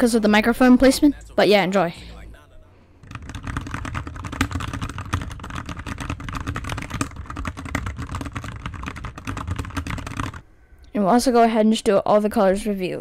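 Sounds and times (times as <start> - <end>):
mechanical keyboard typing: 3.0 - 10.4.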